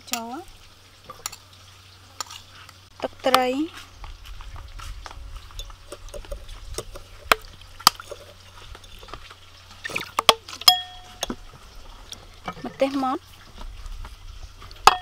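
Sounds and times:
small clicks and drips: 0.0s - 15.0s
spoon knocking glass bowl: 10.7s - 11.4s.

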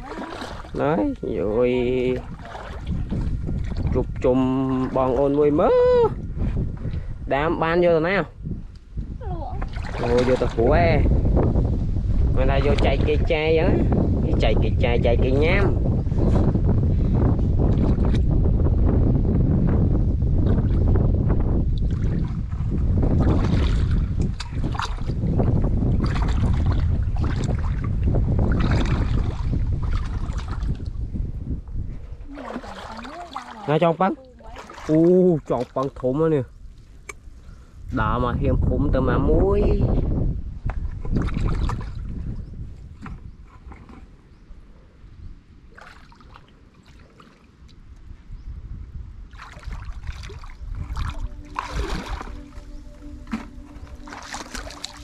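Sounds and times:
feet wading through muddy water: 0.0s - 6.0s, 9.5s - 11.1s, 21.7s - 31.1s, 32.1s - 37.1s, 40.8s - 44.2s, 45.6s - 47.9s, 49.2s - 55.0s
wind rumble on microphone: 0.0s - 55.0s.

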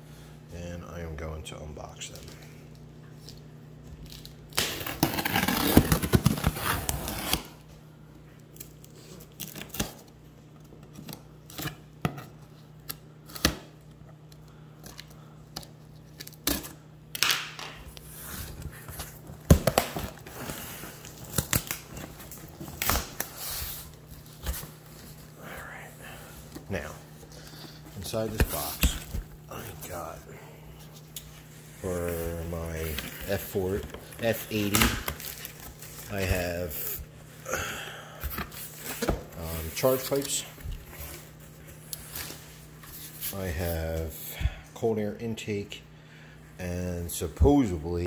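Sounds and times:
knife cutting packing tape: 4.0s - 7.6s, 8.5s - 10.1s
tape tearing: 4.0s - 7.6s, 8.5s - 10.1s, 15.6s - 25.0s, 32.6s - 37.0s.

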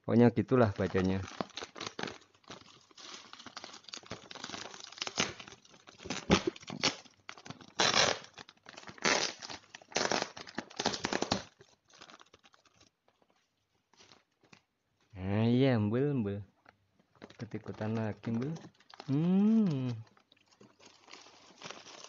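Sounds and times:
plastic bag crinkling and tearing: 0.7s - 13.4s, 17.1s - 22.0s.

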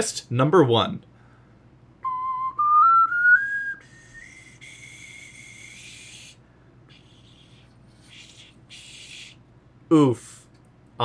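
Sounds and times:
ocarina playing a scale: 2.0s - 3.8s
airy breath hiss: 3.8s - 9.5s.

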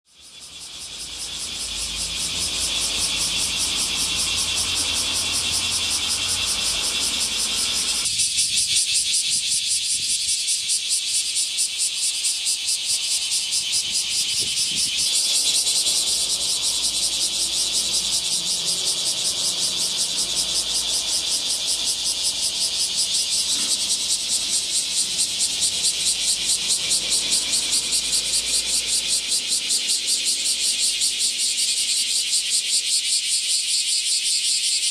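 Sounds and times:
cicadas buzzing: 0.1s - 34.9s.

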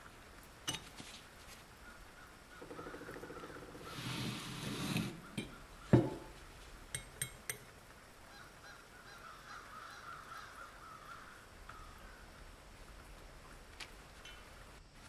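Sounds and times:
thud on workbench: 5.9s - 6.3s.

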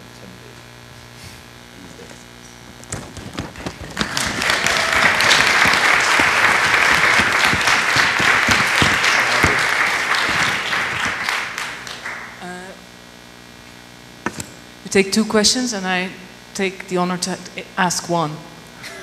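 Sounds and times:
audience applauding: 2.9s - 12.5s.

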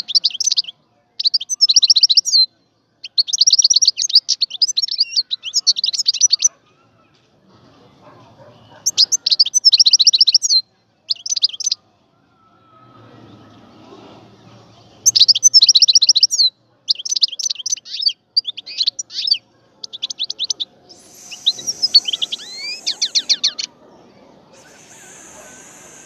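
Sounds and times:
bird twittering: 8.7s - 11.8s, 15.0s - 23.8s, 24.5s - 26.0s.

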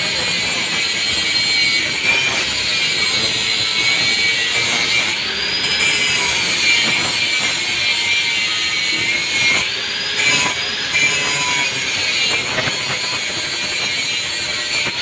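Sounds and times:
angle grinder on metal: 0.0s - 15.0s.

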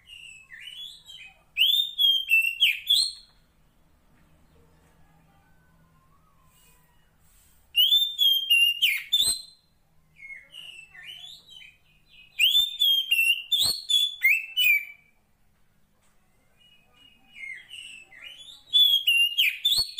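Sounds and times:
soft bird twittering: 7.8s - 15.1s.

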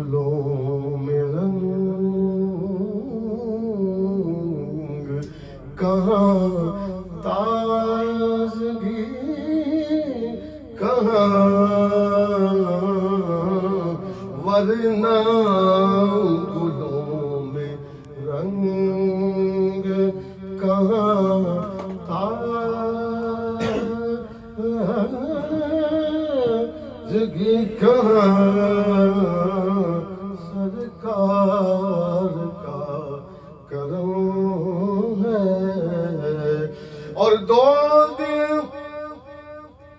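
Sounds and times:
man singing unaccompanied: 0.0s - 39.9s.

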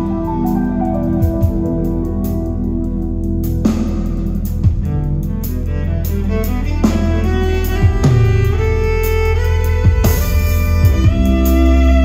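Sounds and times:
deep bass: 0.0s - 12.0s
heavy drum hits: 0.8s - 2.2s.

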